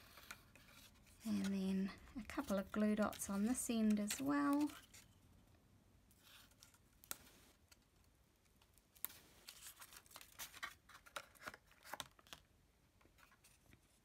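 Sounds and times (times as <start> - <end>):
paper rustling: 0.0 - 5.1, 9.0 - 12.4.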